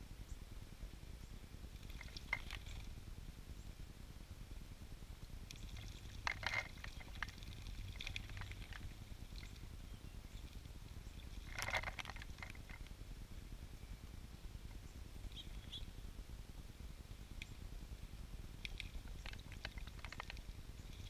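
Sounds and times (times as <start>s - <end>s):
bird splashing in water: 5.5s - 9.6s.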